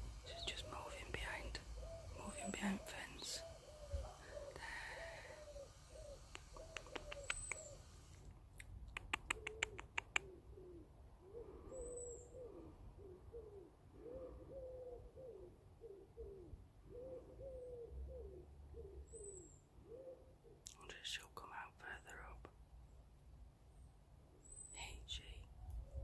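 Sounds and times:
pigeon cooing: 1.7 - 8.1, 8.9 - 20.6
sharp clicks: 6.3 - 7.7, 8.6 - 10.2.

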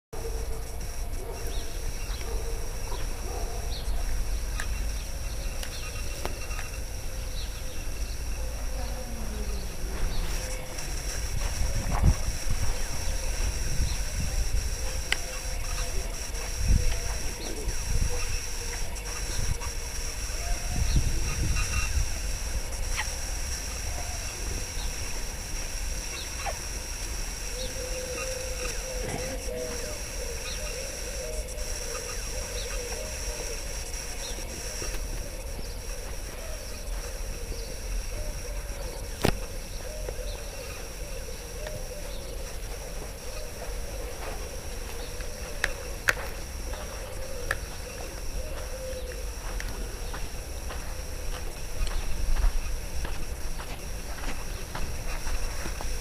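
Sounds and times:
small birds chirping: 0.2 - 43.8, 44.9 - 53.2
steady high hiss: 0.2 - 56.0
high falling animal calls: 0.3 - 42.6
wind rumbling on microphone: 0.5 - 26.1.

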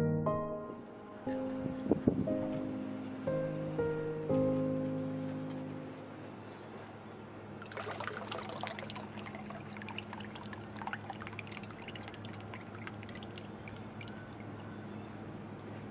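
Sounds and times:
toy boat paddles splashing water: 7.6 - 15.3.

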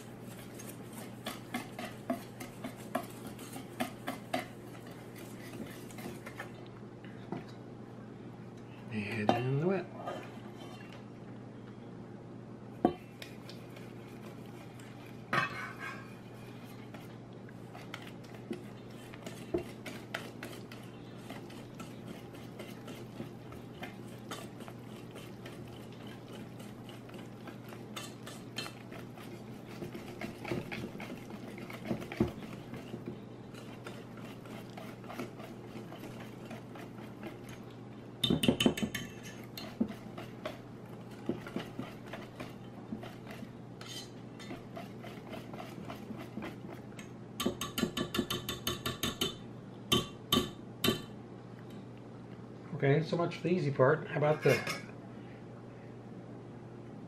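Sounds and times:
whisk clicking in metal bowl: 0.3 - 4.5, 17.8 - 46.8, 47.4 - 51.0.

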